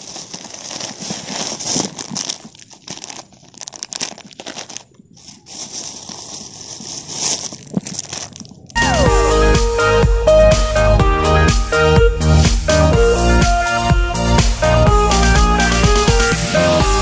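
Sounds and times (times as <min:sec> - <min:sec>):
plastic bags crinkling: 0:00.0 - 0:08.8.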